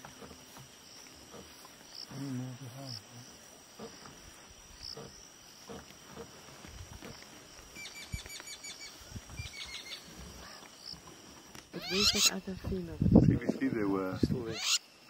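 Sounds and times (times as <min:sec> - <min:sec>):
high insect trill: 0:00.0 - 0:15.0
soft rustles and thuds: 0:03.7 - 0:08.4.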